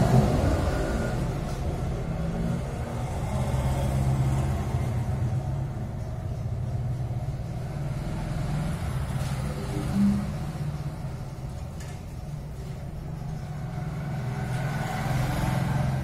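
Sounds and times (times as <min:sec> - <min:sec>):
vehicle engine low rumble: 0:00.0 - 0:16.0.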